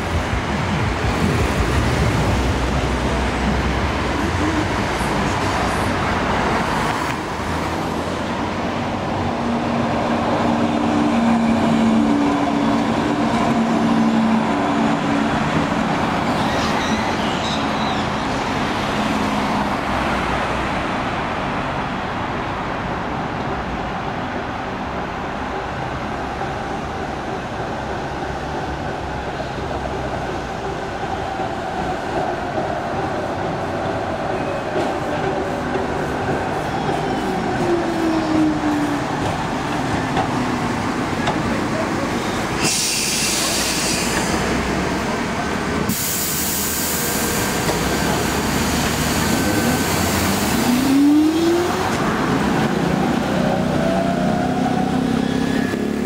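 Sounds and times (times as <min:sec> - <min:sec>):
road traffic: 0:00.0 - 0:56.0.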